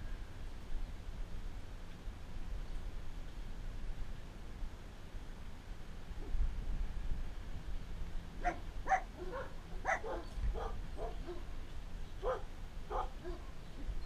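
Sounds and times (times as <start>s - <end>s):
dog barking: 8.4s - 11.5s, 12.2s - 13.5s.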